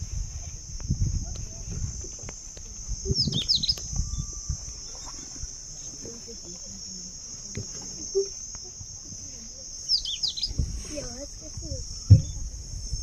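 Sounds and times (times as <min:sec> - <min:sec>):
insects droning: 0:00.0 - 0:13.0
falling chirps: 0:03.0 - 0:06.0, 0:09.8 - 0:10.6.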